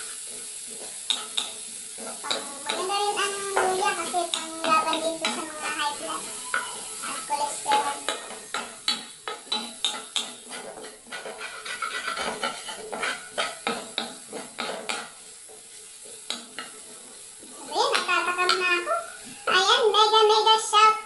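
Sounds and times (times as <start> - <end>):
wooden spatula scraping a pot: 0.0 - 18.6
food sizzling: 0.0 - 21.0.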